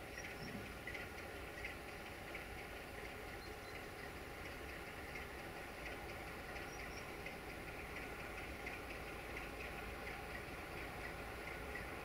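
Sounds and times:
distant diesel locomotive rumble: 0:00.0 - 0:12.0
faint chirps: 0:06.6 - 0:07.2.

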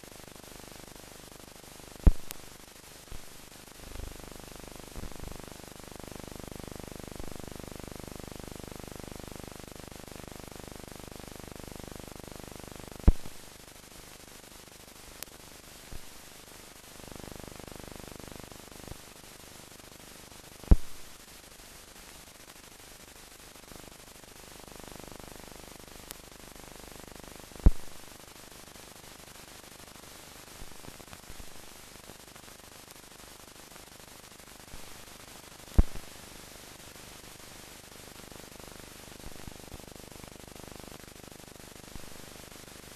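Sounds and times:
film hiss: 0:00.0 - 0:09.2, 0:10.0 - 0:42.9
sharp pops: 0:02.1 - 0:02.4, 0:13.1 - 0:13.4, 0:20.7 - 0:21.0, 0:27.7 - 0:27.9, 0:35.8 - 0:36.0
faint clicks: 0:13.1 - 0:13.4.

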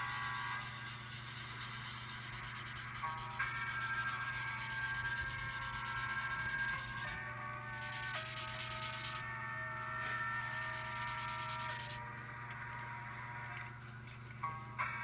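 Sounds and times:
soft background music: 0:00.0 - 0:15.0
pencil scratching on paper: 0:00.6 - 0:07.2, 0:07.8 - 0:09.2, 0:10.4 - 0:12.0.

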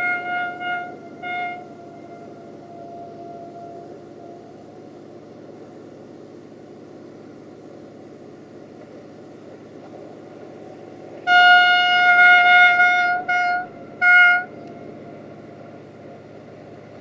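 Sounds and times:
locomotive horn blasts: 0:00.0 - 0:05.4, 0:11.2 - 0:14.9
diesel engine rumble: 0:00.0 - 0:17.0.

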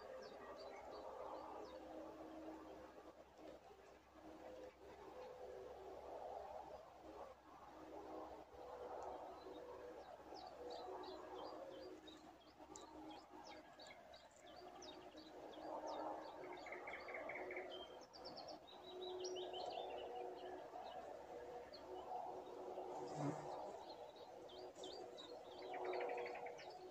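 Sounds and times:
songbirds chirping: 0:07.9 - 0:26.9.

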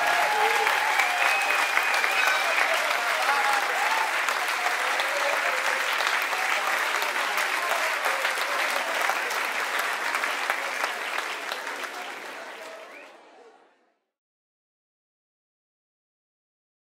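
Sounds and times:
audience applauding: 0:00.0 - 0:13.5.

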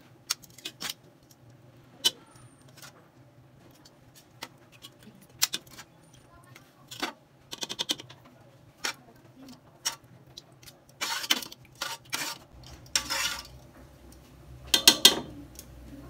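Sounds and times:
tongs scraping inside pot: 0:03.7 - 0:08.2, 0:08.8 - 0:13.7
metal tongs clicking on pot: 0:03.8 - 0:06.3, 0:12.6 - 0:15.8.

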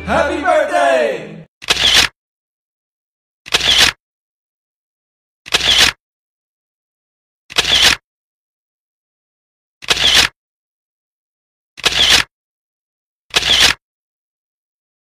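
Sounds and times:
camera shutter clicks: 0:01.6 - 0:02.1, 0:03.5 - 0:04.0, 0:05.5 - 0:06.0, 0:07.5 - 0:08.0, 0:09.8 - 0:10.3, 0:11.8 - 0:12.3, 0:13.3 - 0:13.8.

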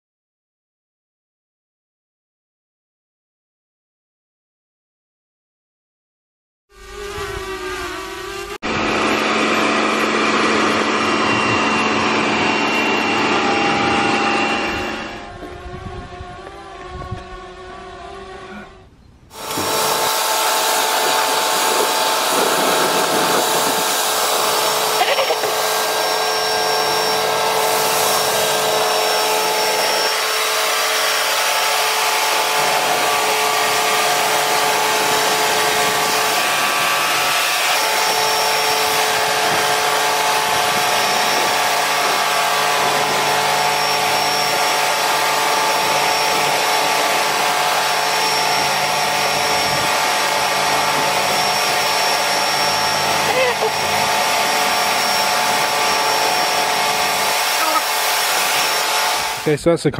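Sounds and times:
pressure washer motor hum: 0:06.7 - 0:18.6, 0:19.3 - 0:59.6
water jet hissing: 0:19.3 - 0:30.5.

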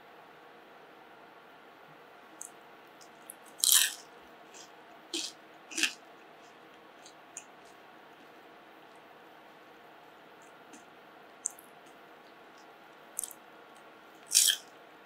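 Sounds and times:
crispy fried potato crunching: 0:02.4 - 0:08.4, 0:10.5 - 0:13.4, 0:14.2 - 0:14.8.

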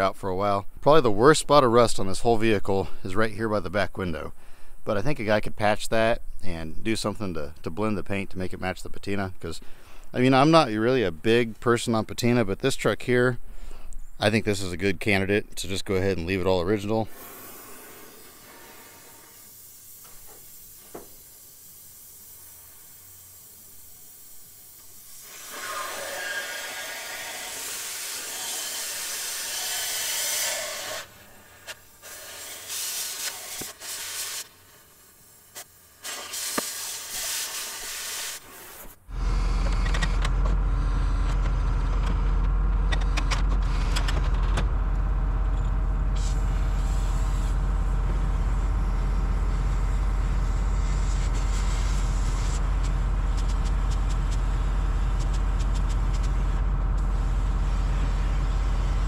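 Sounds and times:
cutting torch hissing: 0:17.0 - 0:39.5, 0:46.0 - 0:59.0
diesel engine running: 0:39.0 - 0:59.0.

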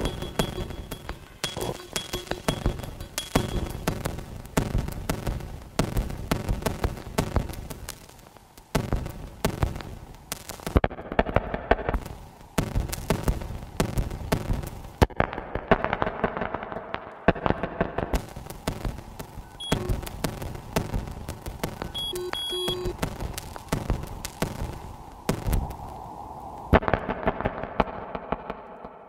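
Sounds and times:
electronic music of clicks and pops: 0:00.0 - 0:04.7, 0:19.3 - 0:24.8.

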